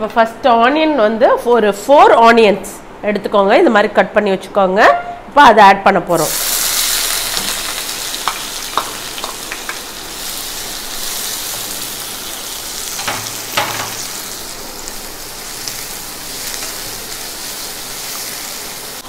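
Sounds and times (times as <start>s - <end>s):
onions sizzling in hot oil: 6.2s - 19.0s
spatula clacking against pan: 13.0s - 14.0s.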